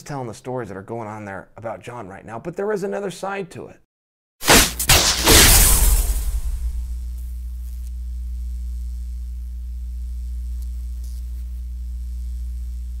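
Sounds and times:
faint electrical sizzle and crackles: 0:04.5 - 0:13.0
neon sign electrical hum: 0:04.7 - 0:13.0.

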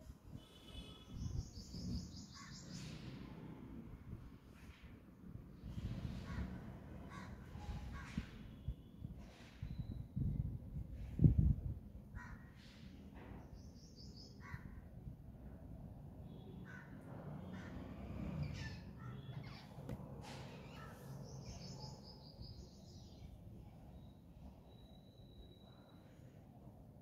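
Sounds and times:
crows cawing: 0:16.6 - 0:17.8.

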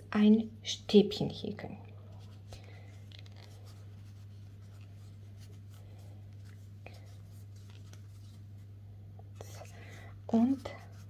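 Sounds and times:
crochet hook rustling yarn: 0:03.1 - 0:09.7, 0:10.3 - 0:11.0.

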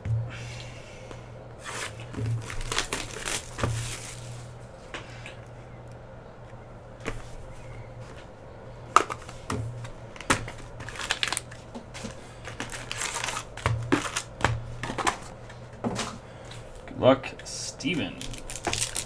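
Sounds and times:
steady low hum: 0:00.0 - 0:19.0
foil crinkling: 0:01.6 - 0:04.6, 0:10.2 - 0:15.3, 0:18.0 - 0:19.0.

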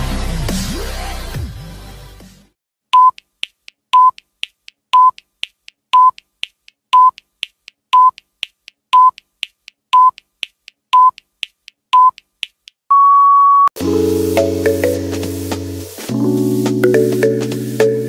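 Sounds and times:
electronic timer beeps: 0:03.0 - 0:03.2, 0:04.0 - 0:04.2, 0:05.0 - 0:05.2, 0:06.0 - 0:06.2, 0:07.0 - 0:07.2, 0:08.0 - 0:08.2, 0:09.0 - 0:09.2, 0:10.0 - 0:10.2, 0:11.0 - 0:11.2, 0:12.0 - 0:12.2, 0:12.9 - 0:13.7
soft ticks: 0:03.0 - 0:12.8.

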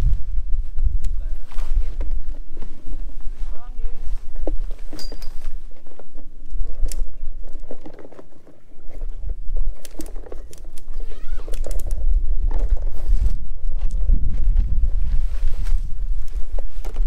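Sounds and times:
tent fabric rustling: 0:00.0 - 0:11.8, 0:14.3 - 0:17.0
wind rumbling on microphone: 0:00.0 - 0:17.0
tent poles clicking: 0:04.3 - 0:14.2, 0:15.5 - 0:17.0.

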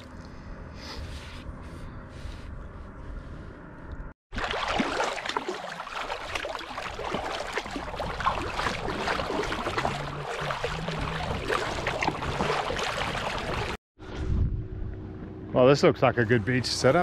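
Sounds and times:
paddle blades dipping: 0:04.3 - 0:13.8
water splashing along kayak hull: 0:04.3 - 0:13.8.

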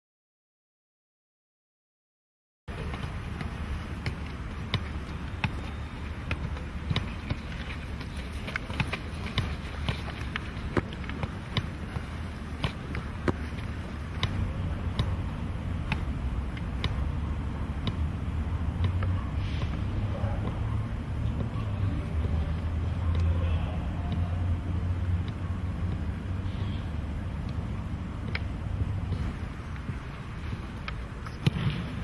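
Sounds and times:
football thudding: 0:02.8 - 0:17.1, 0:28.3 - 0:32.0.

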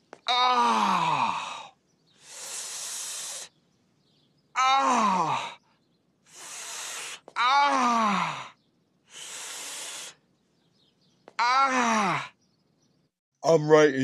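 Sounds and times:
man groaning in pain: 0:00.3 - 0:01.6, 0:04.6 - 0:05.6, 0:07.4 - 0:08.4, 0:11.4 - 0:12.3
hiss through clenched teeth: 0:02.2 - 0:03.5, 0:06.3 - 0:07.2, 0:09.1 - 0:10.2.

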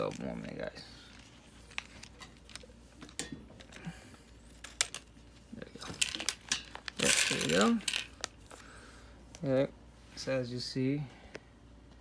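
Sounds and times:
plastic bag rustling: 0:05.6 - 0:08.7.

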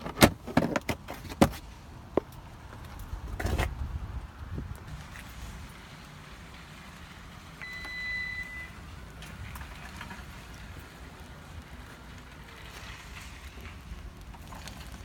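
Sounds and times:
electronic warning beep: 0:07.6 - 0:08.8.

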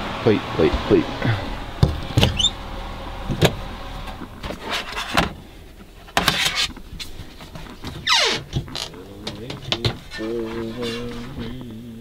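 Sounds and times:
cabinet knocks: 0:01.8 - 0:02.4.

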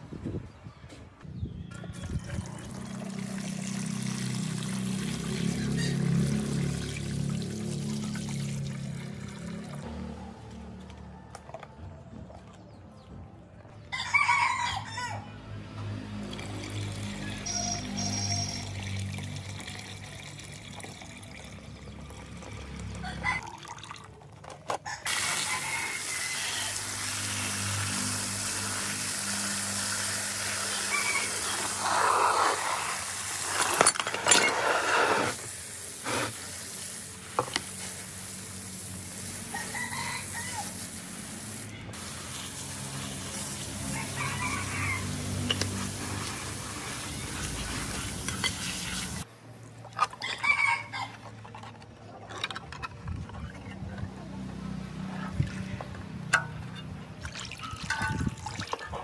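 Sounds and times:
hose water splashing on metal parts: 0:02.6 - 0:10.0, 0:23.9 - 0:50.8, 0:55.3 - 0:59.0.

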